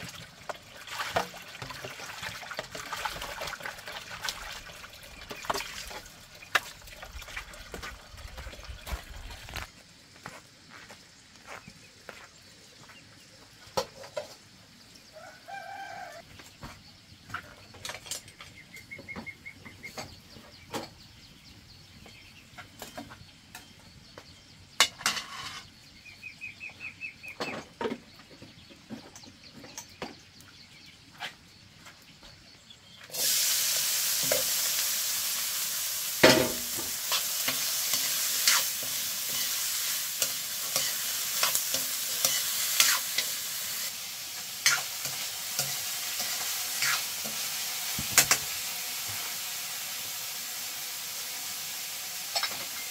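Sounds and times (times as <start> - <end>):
food sizzling in hot oil: 0.0 - 9.7, 33.1 - 52.9
utensil knocking in pan: 36.2 - 37.6.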